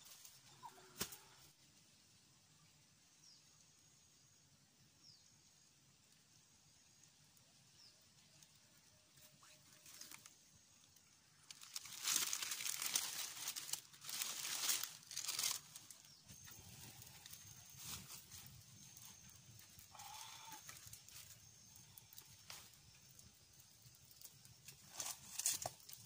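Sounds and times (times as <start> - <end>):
faint bird chirps: 6.6 - 25.2
dry leaves rustling and crackling: 9.4 - 26.0.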